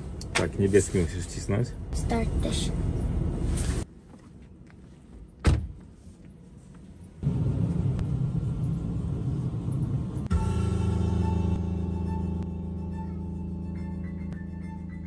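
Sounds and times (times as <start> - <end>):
car door thud: 5.4 - 5.8.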